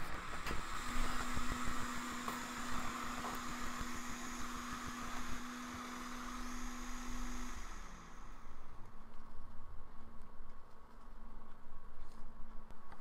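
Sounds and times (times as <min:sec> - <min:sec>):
hot air station blowing hiss: 0:00.0 - 0:08.8
low hum: 0:00.0 - 0:13.0.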